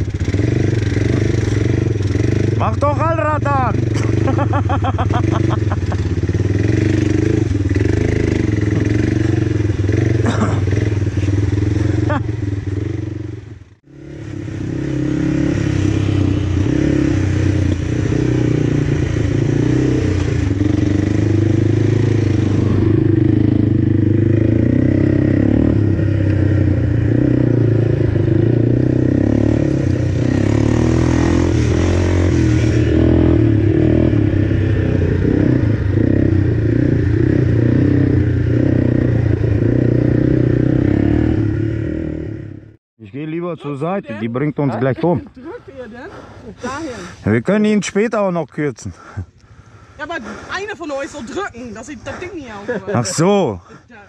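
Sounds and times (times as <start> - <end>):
quad engine running: 0.0 - 42.7.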